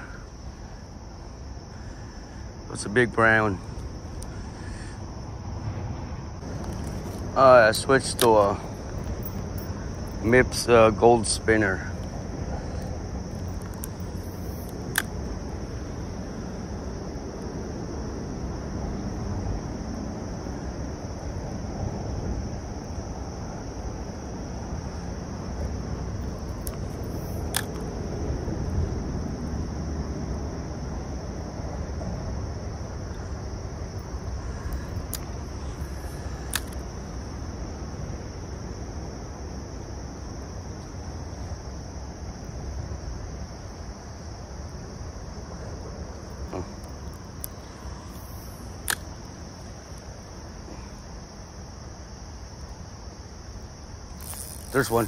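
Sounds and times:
insects droning: 0.0s - 55.0s
sharp clicks: 36.4s - 36.8s, 46.8s - 49.1s.

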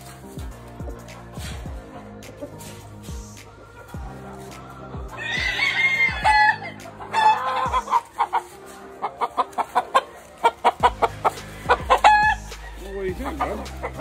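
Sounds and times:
background music: 0.0s - 14.0s
roosters crowing: 2.6s - 14.0s
rapid clucks: 6.8s - 14.0s.

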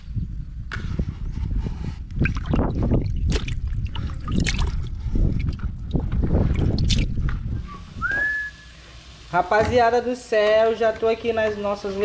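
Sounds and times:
wind rumbling on microphone: 0.0s - 8.5s
fish splashing in water basin: 2.2s - 5.7s.

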